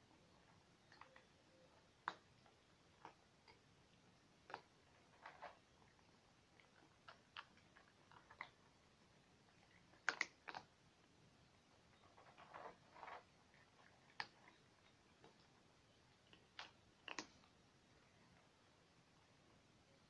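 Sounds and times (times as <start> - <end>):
cats chewing: 0.0 - 19.7.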